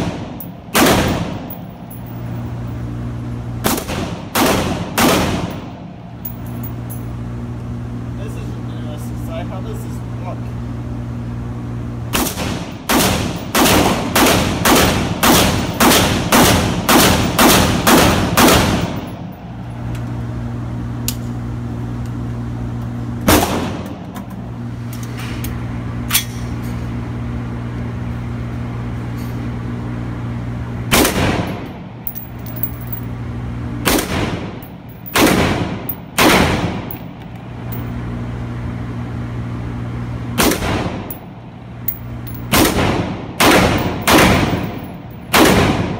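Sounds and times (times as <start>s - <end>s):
rifle shots echoing indoors: 0.0s - 1.6s, 3.6s - 5.6s, 12.1s - 19.0s, 35.1s - 36.9s, 42.3s - 45.9s
steady low hum: 0.0s - 45.9s.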